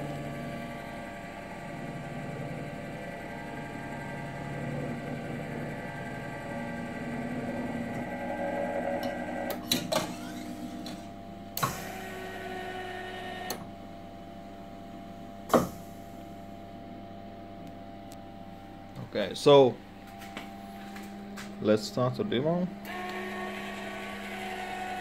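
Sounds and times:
stepper motors whining: 0.0 - 13.7, 22.2 - 25.0
sharp mechanical knocks: 15.5 - 15.8.

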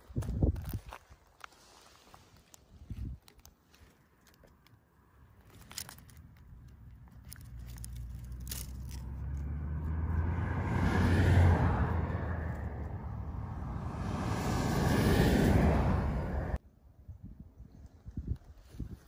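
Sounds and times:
vehicle passing by: 7.8 - 16.6.

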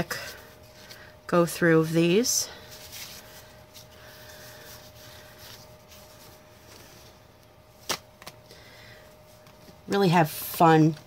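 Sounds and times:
thin steady hum: 0.0 - 11.0
paper sheets rustling: 2.6 - 7.1.

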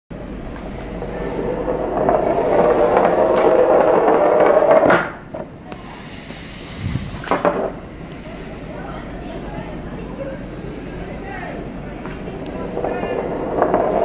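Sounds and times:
metal cylinder rolling on table: 0.5 - 5.5, 7.0 - 7.9, 12.1 - 14.0.

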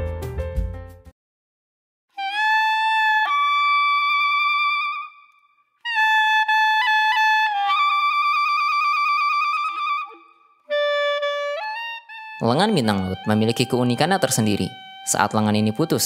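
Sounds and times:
instrumental music jingle: 11.0 - 16.0.

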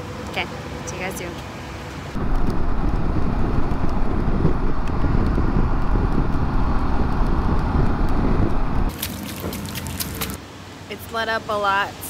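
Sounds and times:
motorcycle road noise rumble: 0.0 - 10.9
wind buffeting microphone: 2.2 - 10.4.

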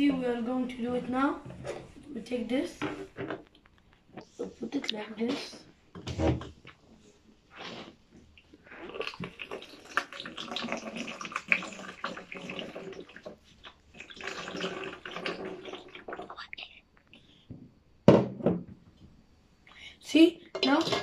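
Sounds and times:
water pouring into plastic bottle: 8.7 - 16.4.

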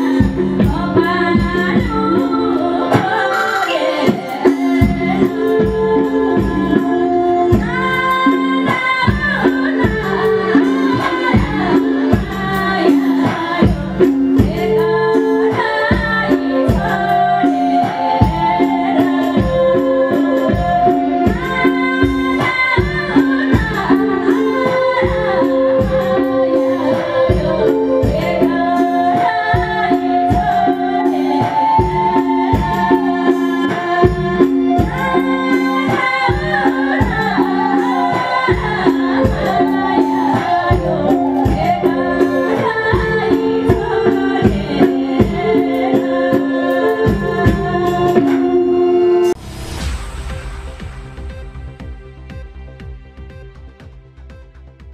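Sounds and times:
live band: 0.0 - 54.9
rhythmic drum beat: 0.0 - 54.9.

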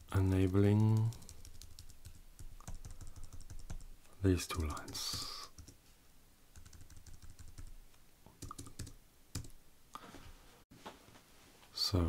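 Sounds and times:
computer keyboard key presses: 8.4 - 9.6.

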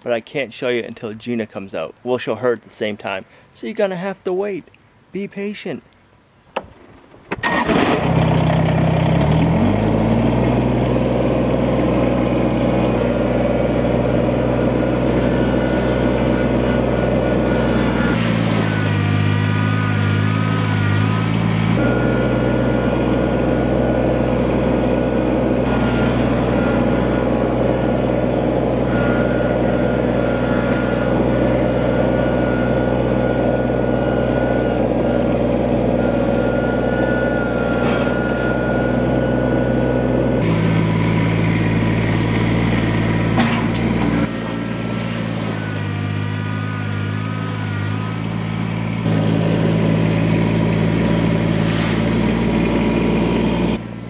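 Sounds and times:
diesel tractor engine starting: 6.6 - 54.0
loader bucket digging into gravel: 51.0 - 52.6.

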